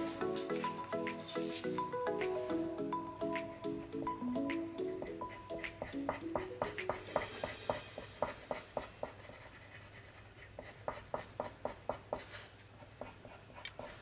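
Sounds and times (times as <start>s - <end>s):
coloured pencil scratching on paper: 8.2s - 14.0s.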